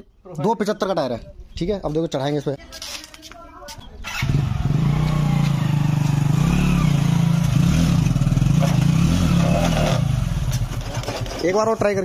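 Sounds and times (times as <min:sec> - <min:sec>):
motorcycle engine at high revs: 0:04.1 - 0:11.6.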